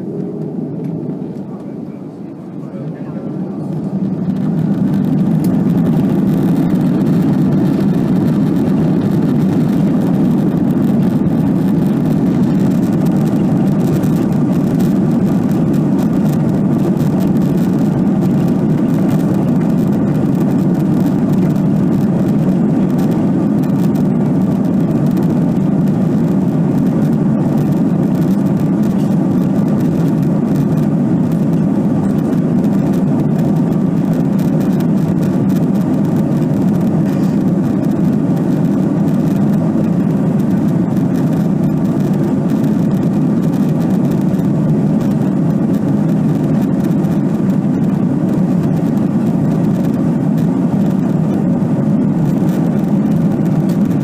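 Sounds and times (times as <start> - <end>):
jet engines rumbling: 0.0 - 54.0.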